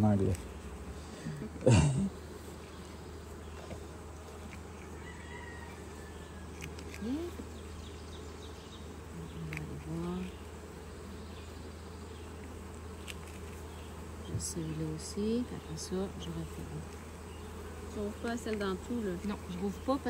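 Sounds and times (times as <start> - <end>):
bee flying past: 0.0 - 20.0
honeybees buzzing: 0.0 - 20.0.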